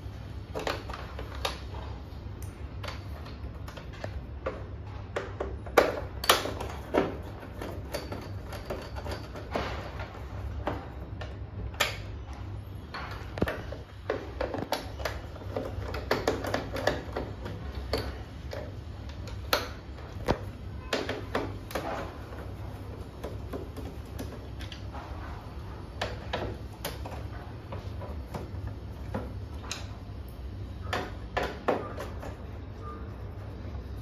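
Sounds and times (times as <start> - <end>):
plastic clicks and knocks: 12.9 - 24.9.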